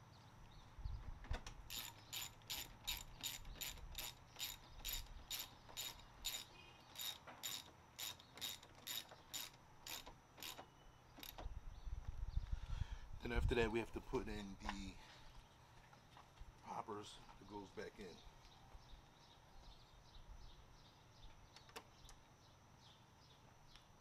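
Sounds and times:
socket ratchet clicking: 0:01.7 - 0:10.6, 0:11.2 - 0:11.4.

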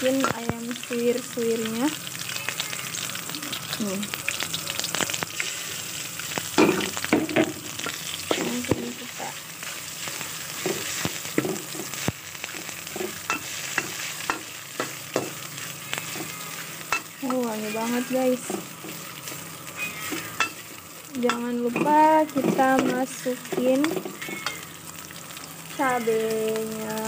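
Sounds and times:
food sizzling in hot oil: 0:00.0 - 0:27.0
metal spatula scraping a wok: 0:12.5 - 0:20.7.

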